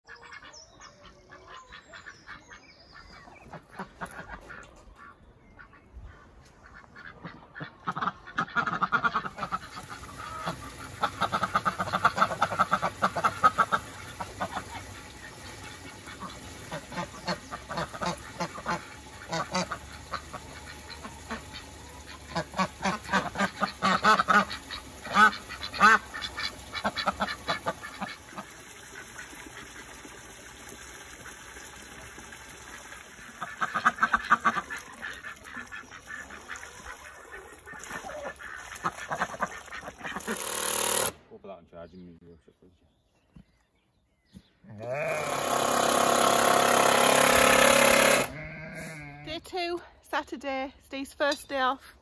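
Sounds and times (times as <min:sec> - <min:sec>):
ducks quacking: 0:00.0 - 0:30.3, 0:32.1 - 0:40.4, 0:48.1 - 0:49.7.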